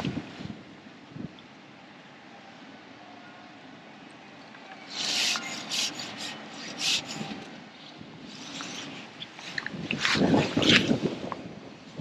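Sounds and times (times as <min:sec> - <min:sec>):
rasping rustles of fishing rod: 0:04.7 - 0:11.3.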